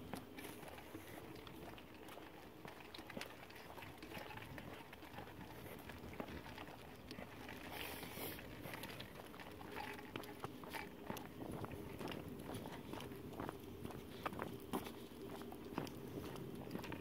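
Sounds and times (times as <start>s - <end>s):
footsteps on concrete: 10.7s - 17.0s.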